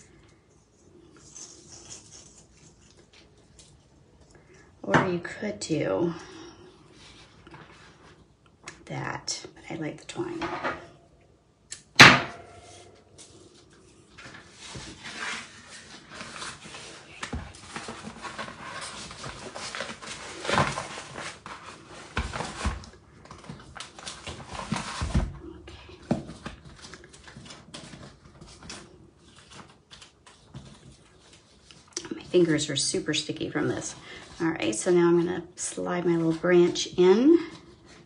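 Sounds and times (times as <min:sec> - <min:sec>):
paper package rustling: 0:12.7 - 0:25.3, 0:26.2 - 0:32.6.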